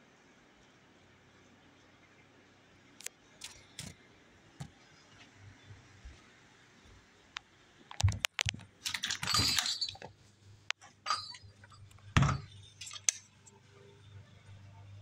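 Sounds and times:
clicks and rattles: 7.9s - 13.4s.

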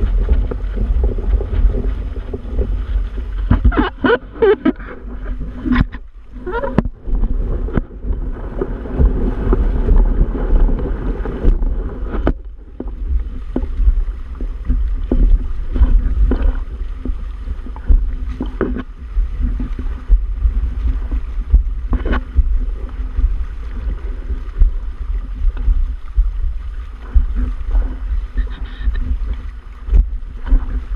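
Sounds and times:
water rushing along hulls: 0.0s - 30.9s
wind buffeting microphone: 0.0s - 30.9s.

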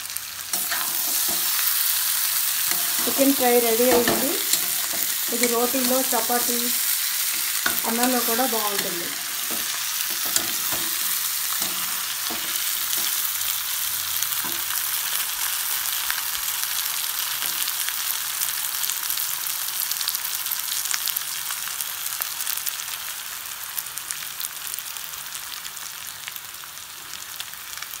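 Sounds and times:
chicken sizzling in oil: 0.0s - 28.0s
metal spatula scraping pan: 2.6s - 13.3s.

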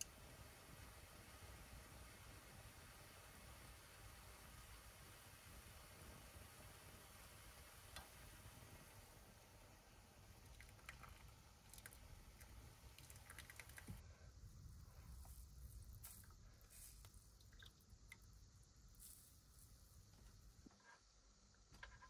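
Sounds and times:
low room hum: 0.0s - 22.0s
water dripping: 10.2s - 14.0s, 15.9s - 18.5s.

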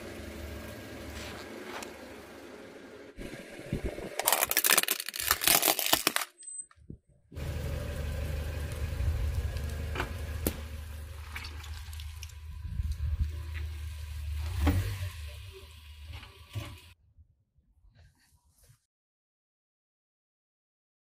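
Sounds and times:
car engine running low: 0.0s - 4.4s, 7.3s - 17.0s
plastic toy crunching under tyre: 4.1s - 6.4s.

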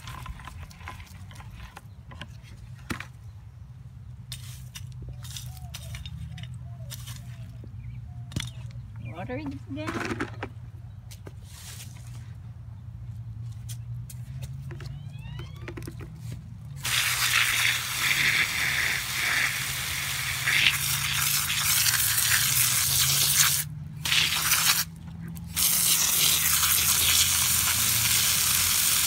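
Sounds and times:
hose spraying water onto mulch: 16.8s - 29.0s.

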